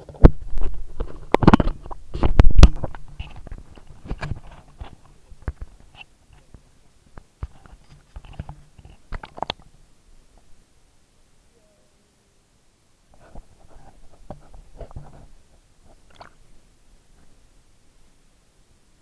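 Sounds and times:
faint knocks and clicks: 0.0 - 9.7.

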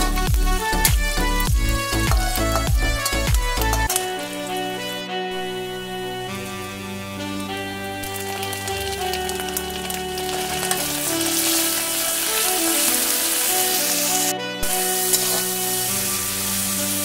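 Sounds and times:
fish sizzling in hot oil: 6.3 - 17.0
metal spatula scraping a pan: 8.0 - 17.0.

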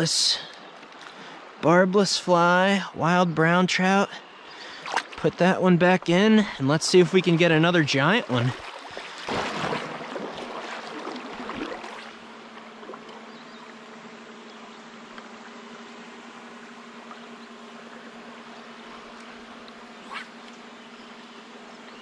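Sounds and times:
faint steady hum: 0.0 - 22.0
water splashes: 4.5 - 13.8.

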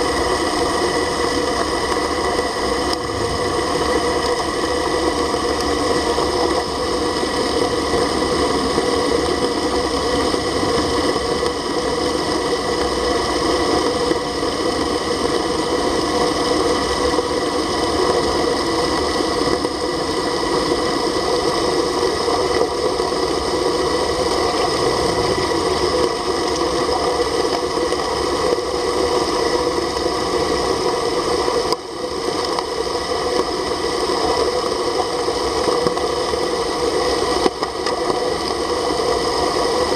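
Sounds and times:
underwater pump humming and rushing: 0.0 - 39.9
whining tones: 2.0 - 5.7, 7.4 - 12.8, 24.0 - 27.1.

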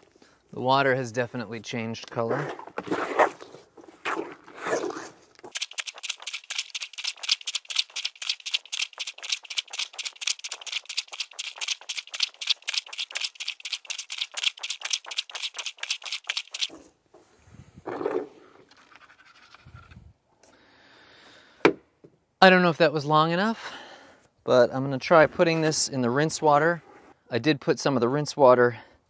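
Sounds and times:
plunger washer suction strokes: 4.6 - 16.9.

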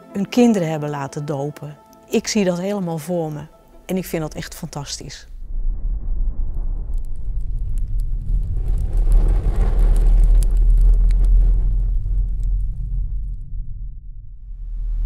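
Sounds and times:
deep rumbling: 4.1 - 15.0
faint crackles: 6.6 - 13.5.

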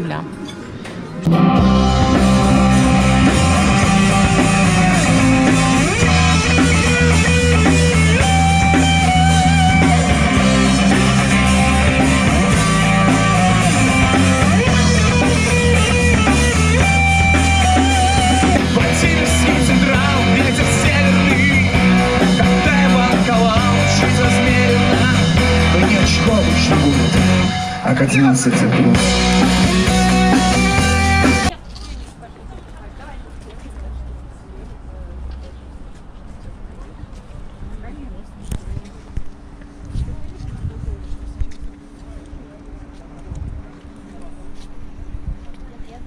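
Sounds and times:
electric and acoustic guitars: 1.2 - 31.6
drum kit: 1.3 - 31.6
person singing: 17.3 - 31.5.

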